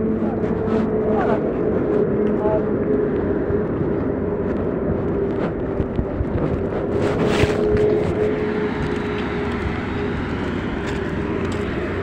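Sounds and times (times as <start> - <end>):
heavy machinery running: 0.0 - 12.0.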